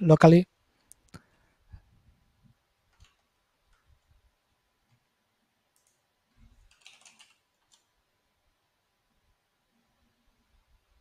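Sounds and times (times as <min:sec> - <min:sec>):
faint keyboard clicks: 0:02.9 - 0:04.1, 0:05.7 - 0:08.0.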